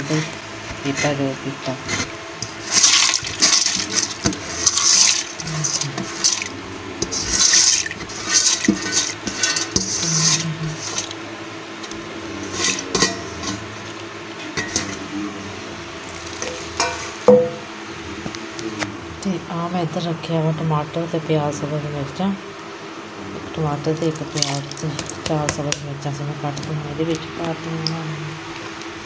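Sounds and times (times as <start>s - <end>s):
hand swishing lentils in water: 2.5s - 6.5s, 7.1s - 11.1s.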